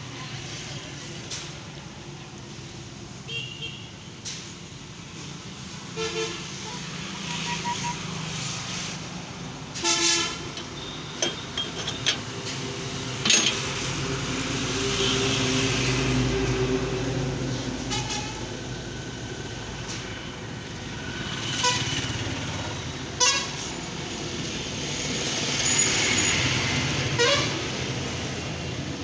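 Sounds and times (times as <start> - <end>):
road traffic: 0.0 - 29.0
vehicle horns honking: 7.3 - 8.0, 9.8 - 11.5, 23.2 - 23.6, 27.2 - 27.6
passing vehicle engine: 12.2 - 17.9.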